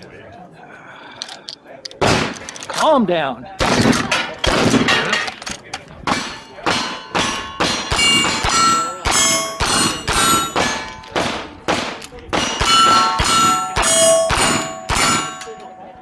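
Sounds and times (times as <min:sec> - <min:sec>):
steel targets pinging: 0:06.1 - 0:11.4, 0:12.4 - 0:15.9.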